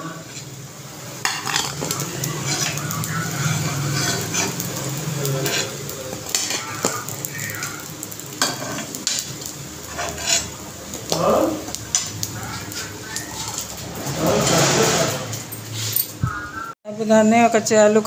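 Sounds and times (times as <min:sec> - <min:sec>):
food sizzling in hot fat: 0:00.0 - 0:16.7
metal skimmer scraping a pan: 0:01.2 - 0:07.0, 0:08.4 - 0:10.6, 0:12.8 - 0:16.2.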